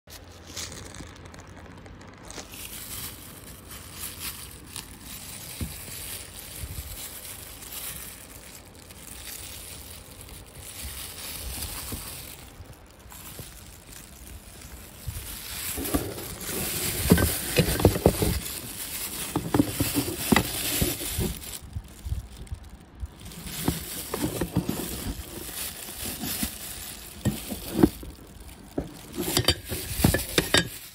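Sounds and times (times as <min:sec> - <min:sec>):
plastic wrapping rustling: 0:00.1 - 0:30.9.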